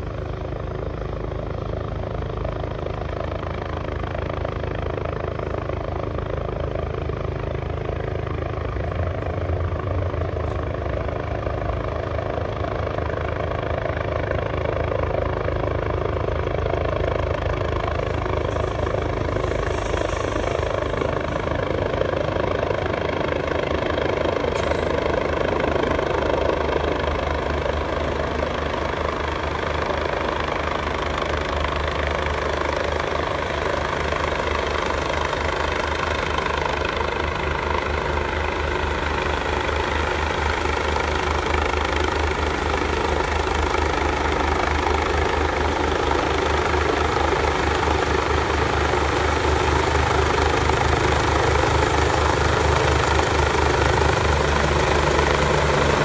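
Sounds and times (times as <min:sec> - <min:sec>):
helicopter rotor beating: 0:00.0 - 0:56.0.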